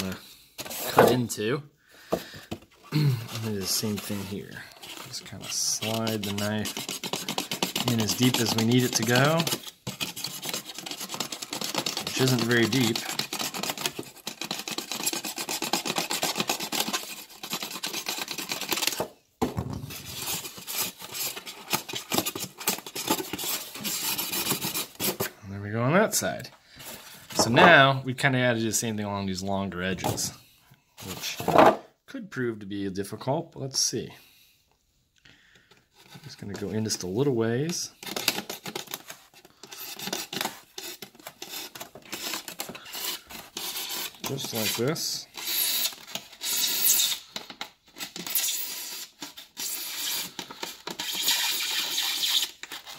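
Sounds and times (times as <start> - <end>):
knife scraping foam: 0.0 - 1.2, 2.9 - 19.0, 20.0 - 25.3, 38.2 - 47.2, 48.0 - 52.9.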